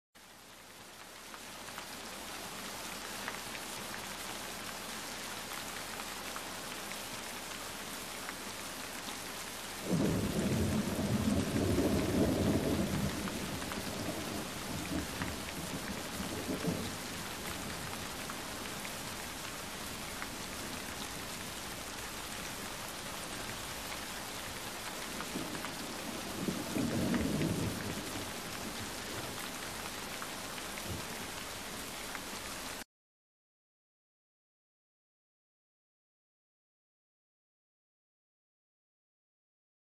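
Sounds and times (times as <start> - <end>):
steady rain falling: 0.2 - 32.9
low thunder rumbles: 9.8 - 18.0, 25.1 - 29.3.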